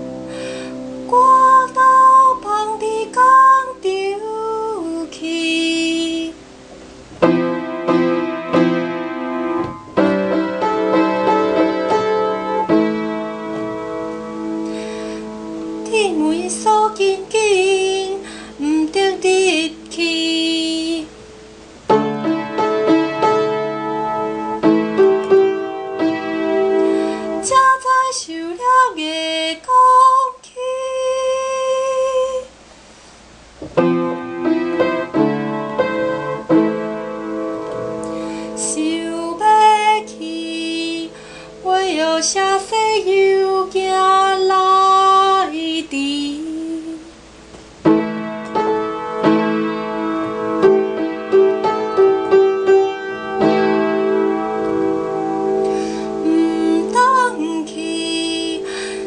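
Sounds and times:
woman singing with vibrato: 1.0s - 6.5s, 15.8s - 21.2s, 26.8s - 32.6s, 38.4s - 47.2s, 55.7s - 59.0s
piano playing chords: 6.4s - 27.7s, 33.5s - 42.6s, 47.4s - 59.0s.

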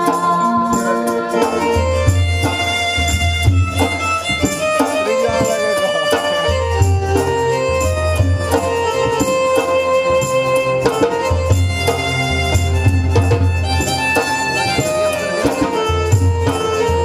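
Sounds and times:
bowed string melody: 0.0s - 17.0s.

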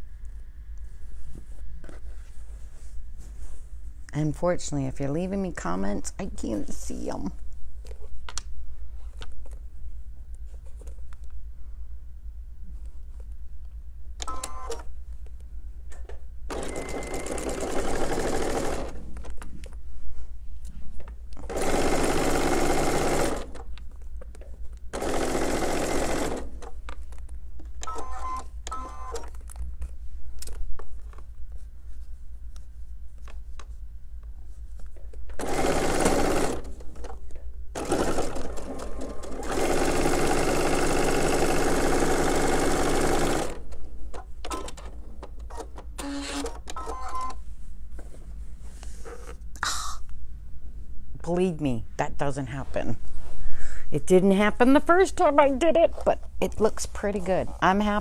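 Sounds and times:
low steady hum: 0.0s - 25.0s
sewing machine stitching: 16.5s - 19.0s, 21.5s - 23.6s, 25.0s - 26.6s, 35.4s - 36.8s, 37.8s - 43.6s.

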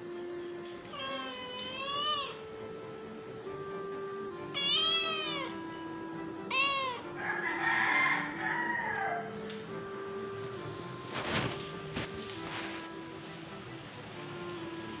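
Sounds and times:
soft background music: 0.0s - 15.0s
cat meowing: 0.9s - 2.4s, 4.5s - 5.6s, 6.5s - 7.2s.

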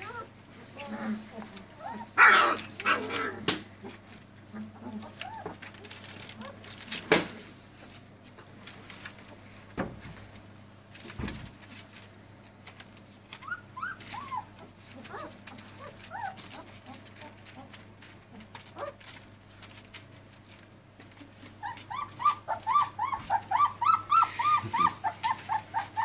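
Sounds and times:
puppies whimpering: 0.0s - 3.4s, 4.6s - 6.5s, 13.3s - 19.2s, 21.4s - 26.0s
scratching and rustling on paper: 0.0s - 26.0s.

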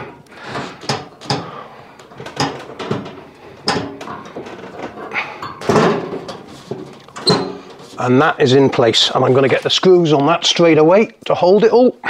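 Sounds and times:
metal and plastic knocks and scrapes: 0.0s - 9.6s.

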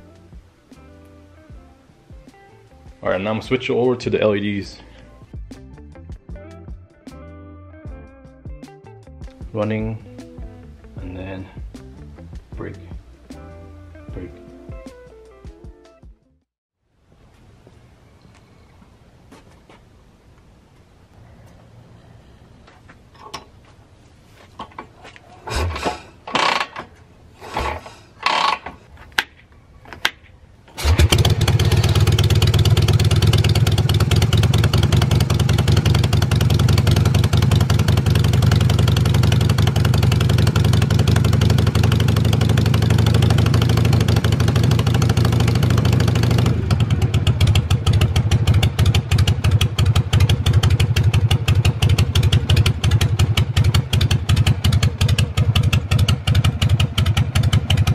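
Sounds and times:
motorcycle engine starting and idling: 25.5s - 28.9s, 30.0s - 57.9s.

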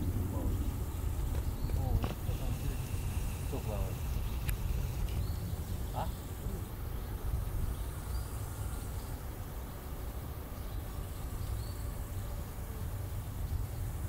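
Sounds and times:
wind rumble on microphone: 0.0s - 8.4s
faint bird chirp: 0.0s - 12.6s.

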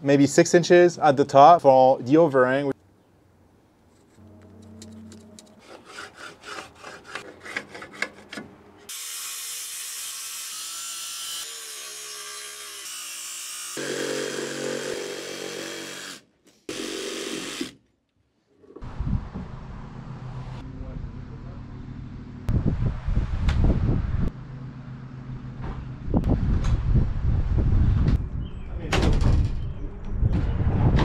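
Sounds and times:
circular saw cutting wood: 5.4s - 17.8s.

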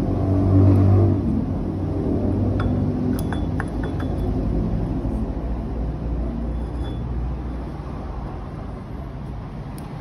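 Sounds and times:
vehicle engine rumbling: 0.0s - 10.0s.

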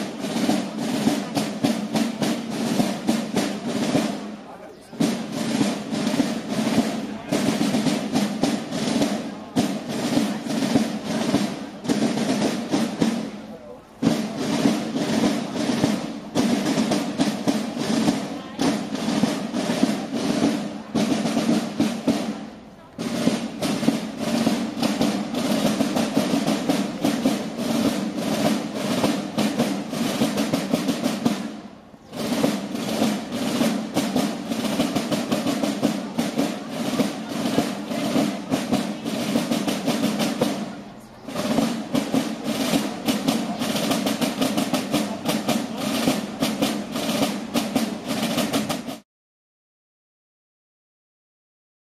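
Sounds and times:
side drums rolling: 0.0s - 49.0s.

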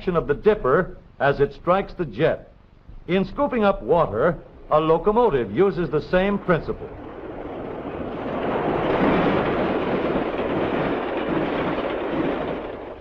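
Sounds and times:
steam train rushing past: 3.9s - 13.0s.

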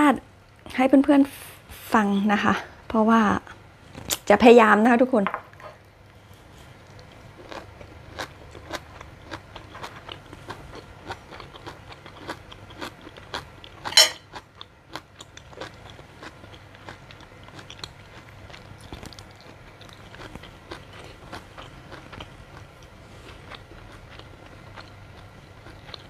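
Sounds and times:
person chewing crunchy food: 6.2s - 26.0s.

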